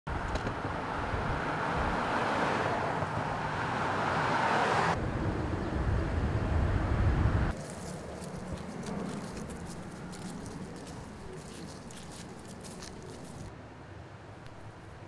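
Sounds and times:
passing car: 0.5s - 7.6s.

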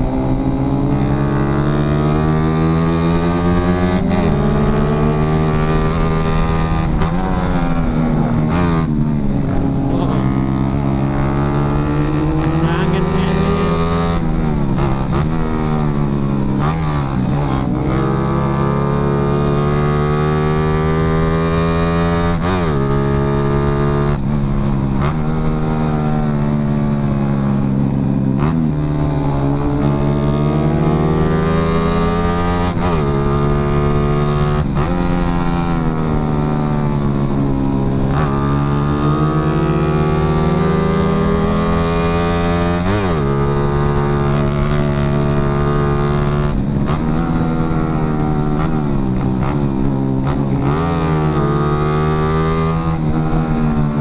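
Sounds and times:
motorcycle engine revving and shifting: 0.0s - 54.0s.

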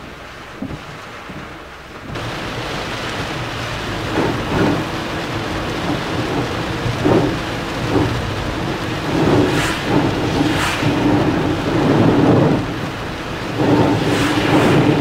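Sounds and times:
heavy rain on a car: 0.0s - 15.0s.

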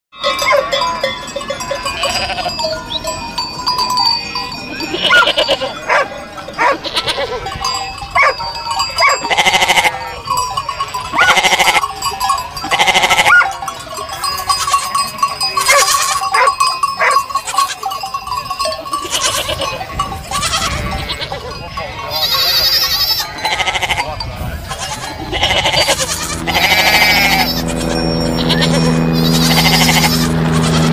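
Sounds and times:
flock of sheep bleating: 1.8s - 2.6s, 4.7s - 7.8s, 9.2s - 10.2s, 11.1s - 13.6s, 14.2s - 17.9s, 18.8s - 30.9s.

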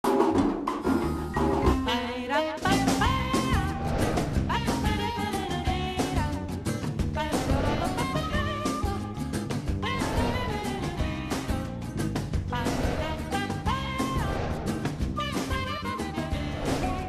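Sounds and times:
television theme music: 0.0s - 6.5s.

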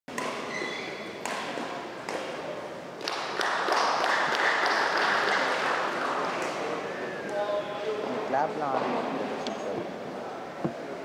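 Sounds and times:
rackets striking shuttlecock: 0.1s - 0.5s, 1.1s - 2.4s
crowd noise: 0.1s - 11.0s.

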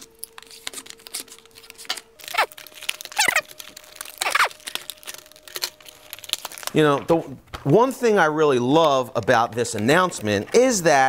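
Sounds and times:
plastic packaging crackling: 0.0s - 11.0s.

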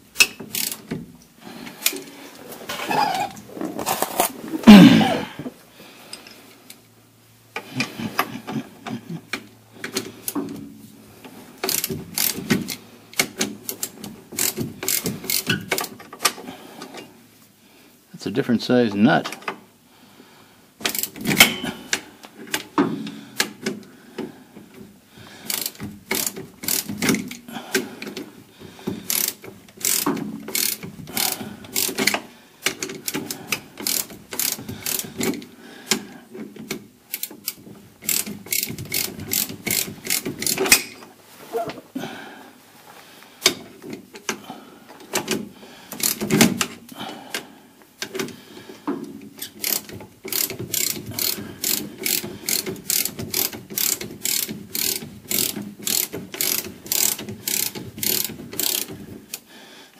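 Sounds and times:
socket ratchet clicking: 11.6s - 15.9s, 20.8s - 22.7s, 25.5s - 27.4s, 29.1s - 36.0s, 36.7s - 40.9s, 45.2s - 46.7s, 49.3s - 59.4s.

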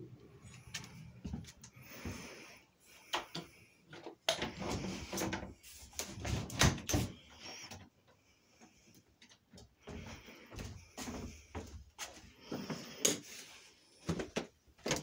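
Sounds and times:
footsteps on wooden floor: 9.8s - 12.9s, 14.0s - 15.0s.

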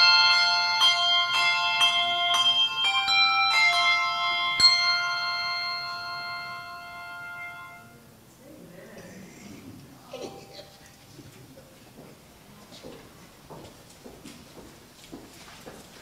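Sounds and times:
handbells ringing chords: 0.0s - 8.0s.

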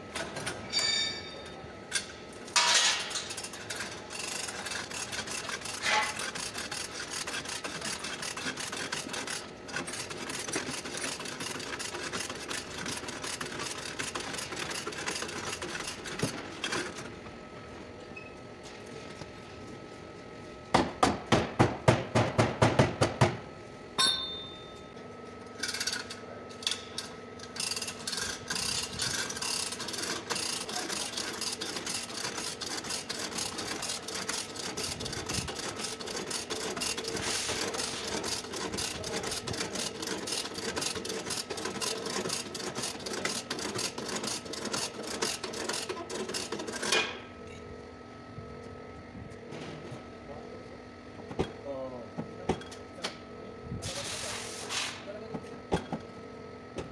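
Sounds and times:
chain hoist ratcheting: 27.5s - 46.9s.

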